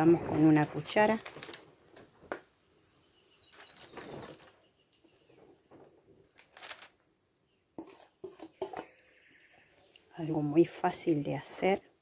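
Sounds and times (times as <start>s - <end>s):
spatula scraping a steel bowl: 7.8s - 8.9s.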